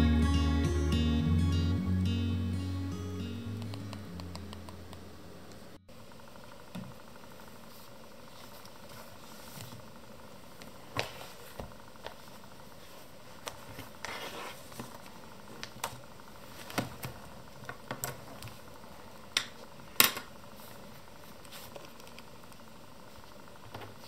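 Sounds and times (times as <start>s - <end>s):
low hiss: 0.0s - 16.5s
paper rustle: 10.9s - 15.2s, 20.5s - 22.3s.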